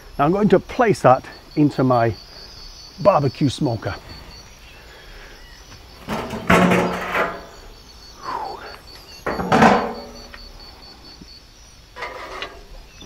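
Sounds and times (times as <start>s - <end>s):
pulsing insect chirp: 0.0s - 13.0s
smoker lid knocking and scraping: 6.0s - 7.6s, 9.2s - 10.3s.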